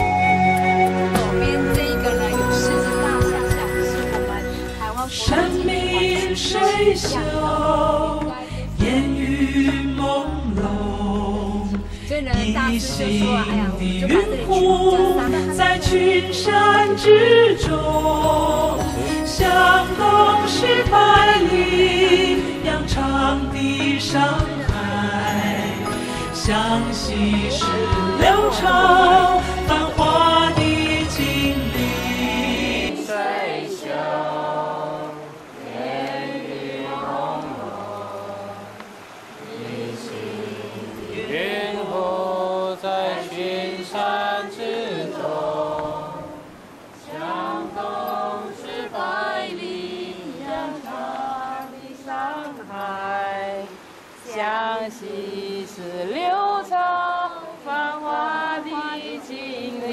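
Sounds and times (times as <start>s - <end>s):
music: 0.0s - 33.0s
person singing long sliding notes: 0.0s - 59.9s
slow chanting voices: 2.9s - 59.9s.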